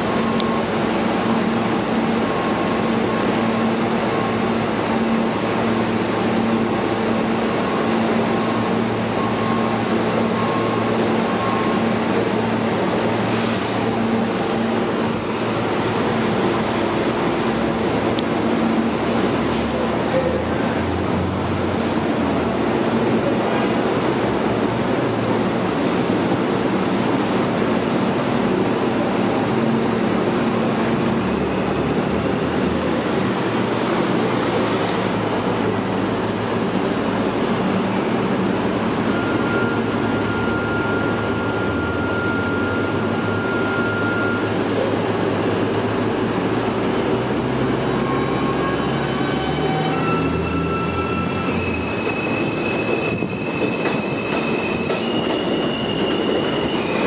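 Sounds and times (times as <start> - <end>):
train rumbling on rails: 0.0 - 57.0
train wheels squealing: 35.0 - 44.9, 47.8 - 57.0.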